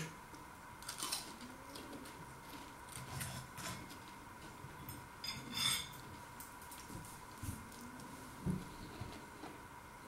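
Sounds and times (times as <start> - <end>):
chewing crunchy food: 0.8 - 4.0.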